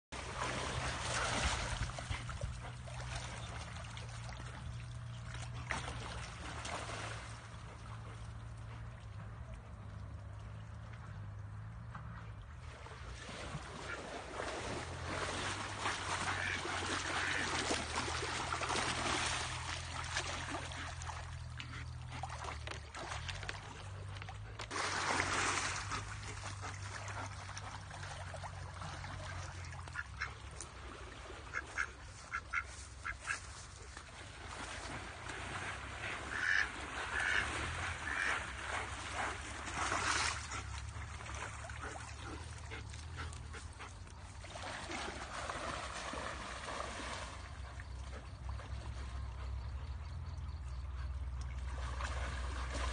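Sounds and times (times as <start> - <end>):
dog swimming and splashing: 0.1 - 52.9
ducks quacking: 16.2 - 18.0, 31.4 - 33.6, 36.0 - 38.6.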